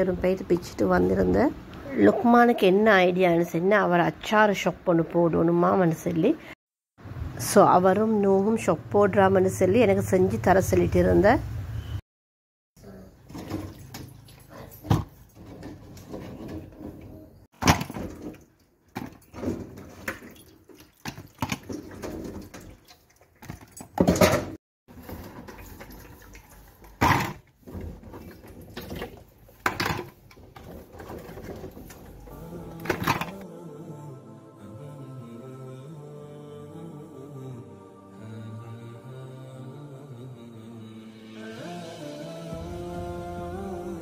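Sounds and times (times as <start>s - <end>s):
running water in sink: 24.9s - 27.0s.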